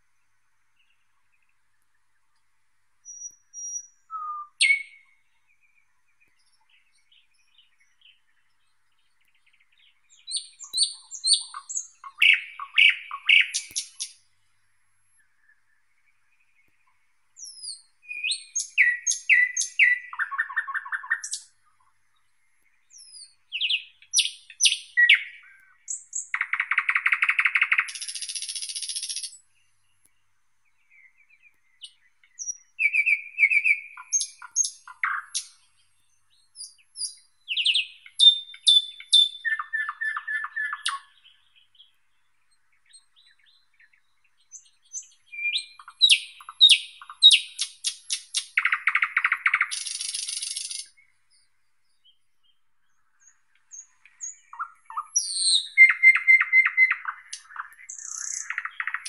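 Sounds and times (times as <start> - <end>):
bird singing: 0.0 - 59.0
bird rattling call: 47.6 - 50.9.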